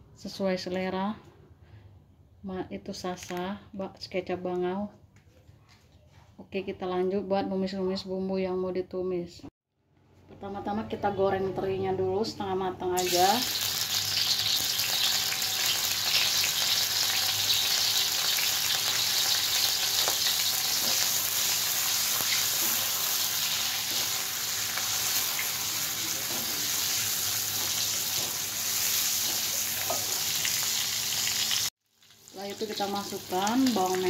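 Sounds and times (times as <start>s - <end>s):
fish sizzling in hot oil: 13.0s - 34.0s
spatula scraping a wok: 19.2s - 31.6s.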